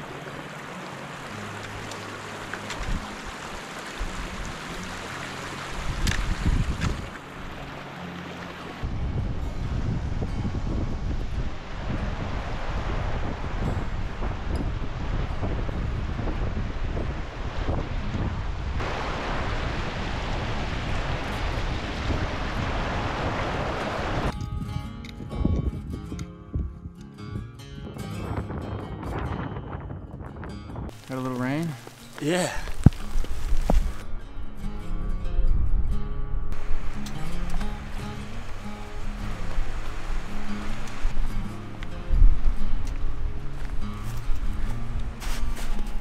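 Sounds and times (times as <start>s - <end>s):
creek running over stones: 0.0s - 8.9s, 30.9s - 34.0s, 36.6s - 41.8s
stream rushing over boulders: 0.0s - 24.3s, 30.9s - 34.1s, 36.5s - 46.0s
wind rumbling on microphone: 0.0s - 46.0s.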